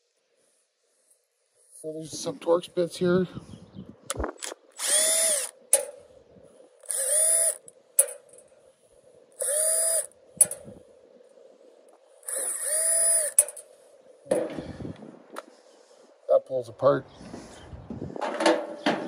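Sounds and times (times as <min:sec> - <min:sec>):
cordless drill unscrewing: 0:04.8 - 0:05.6, 0:06.8 - 0:07.7, 0:12.2 - 0:13.6.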